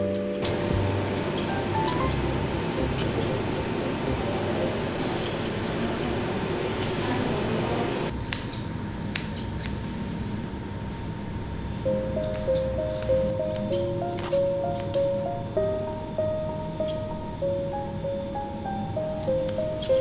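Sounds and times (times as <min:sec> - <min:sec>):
shears snipping hair: 0:00.0 - 0:03.4, 0:05.0 - 0:07.2, 0:08.1 - 0:10.1, 0:12.2 - 0:15.1, 0:16.8 - 0:17.1, 0:19.2 - 0:20.0
steady background hiss: 0:00.0 - 0:08.1, 0:10.2 - 0:20.0.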